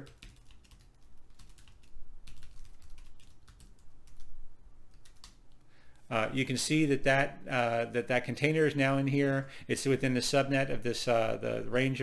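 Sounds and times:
typing on computer keyboard: 0.0 - 4.3, 4.9 - 5.4.

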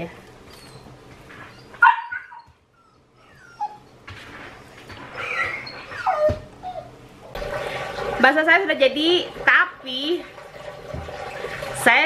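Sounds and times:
dog whining: 0.4 - 4.0, 4.9 - 7.1.

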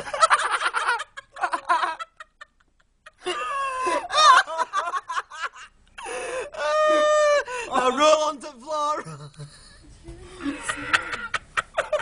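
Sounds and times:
people laughing with shrieks: 3.2 - 7.5, 10.2 - 12.0.

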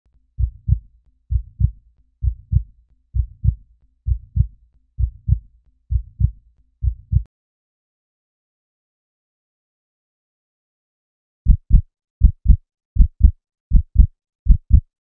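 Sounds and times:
heartbeat thumps: 0.4 - 2.6, 3.2 - 7.3, 11.5 - 14.9.

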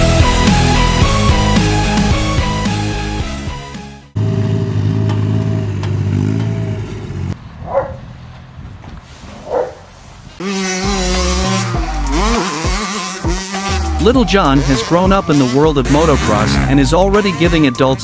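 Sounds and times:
dumper engine running: 0.0 - 8.6, 10.4 - 18.0
motocross bike engine revving: 4.1 - 8.0, 10.4 - 18.0.

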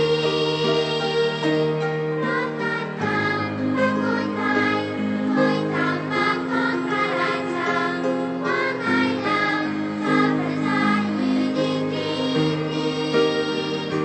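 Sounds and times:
children's choir singing: 0.0 - 14.0
piano accompaniment: 0.0 - 14.0.

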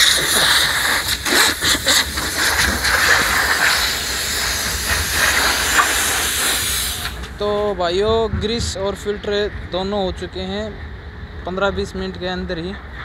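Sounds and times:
compressed air hissing: 0.0 - 7.8.

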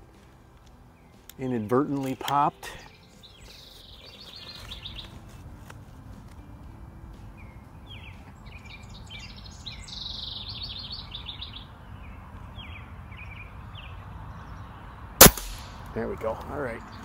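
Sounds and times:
songbirds chirping: 0.0 - 17.0.

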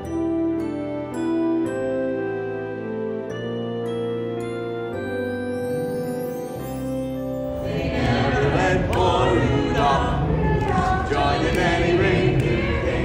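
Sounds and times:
soft background music: 0.0 - 13.0
group singing carols: 7.6 - 13.0.

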